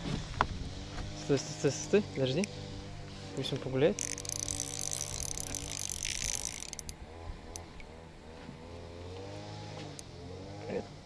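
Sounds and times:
fishing reel drag ratcheting buzz: 0:01.7 - 0:07.9.

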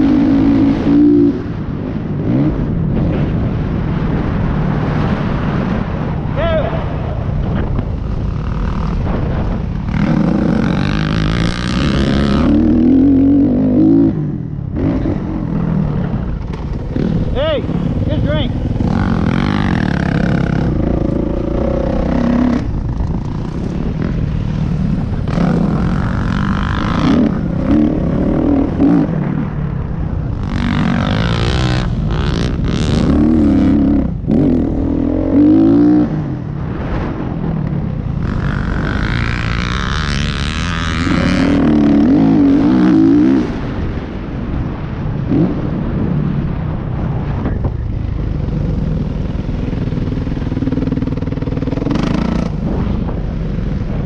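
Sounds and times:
dirt bike engine revving: 0:00.0 - 0:05.6, 0:07.5 - 0:37.3, 0:38.1 - 0:44.1, 0:48.2 - 0:54.0
wind rumble on microphone: 0:00.0 - 0:54.0.

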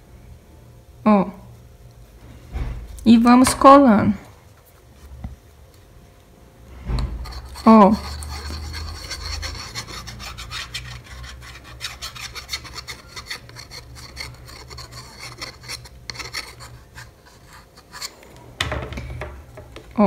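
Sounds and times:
glue nozzle scratchy rubbing: 0:07.2 - 0:18.2.

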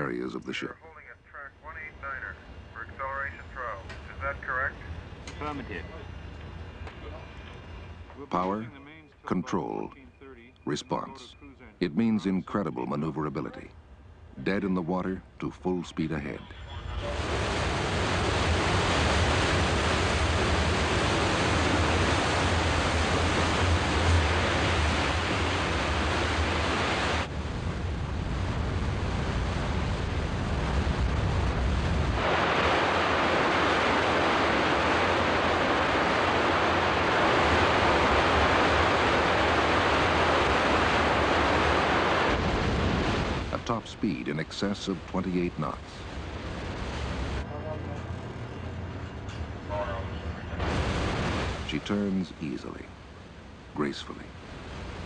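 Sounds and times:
low ship rumble: 0:00.0 - 0:55.0
water and spray rushing: 0:17.0 - 0:47.4, 0:50.6 - 0:52.9.

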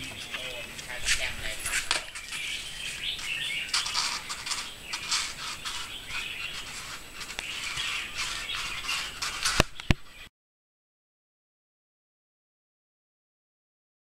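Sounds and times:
rubber tyre scraping over ground: 0:00.0 - 0:10.2.

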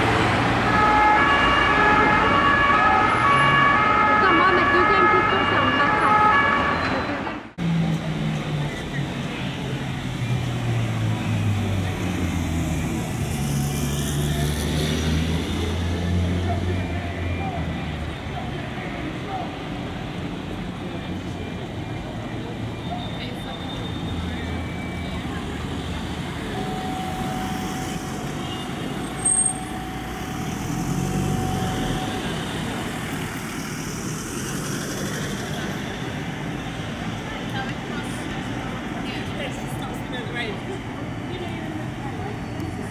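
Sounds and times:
crowd chatter: 0:15.7 - 0:42.9.

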